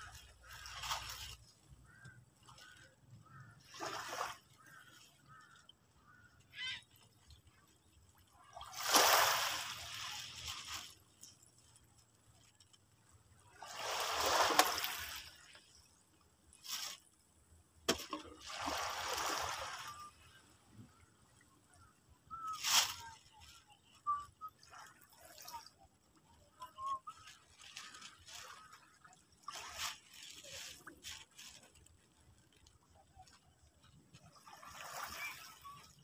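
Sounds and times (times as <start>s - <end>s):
small waves splashing on rocks: 8.6s - 11.0s, 13.5s - 15.6s.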